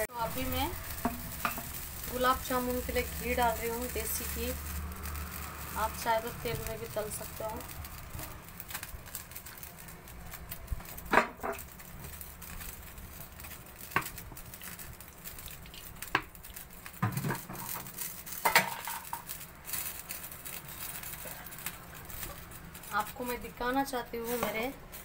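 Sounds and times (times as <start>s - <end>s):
faint steady hiss: 0.0s - 25.0s
utensils and pan clinking: 0.4s - 5.6s, 17.0s - 20.0s.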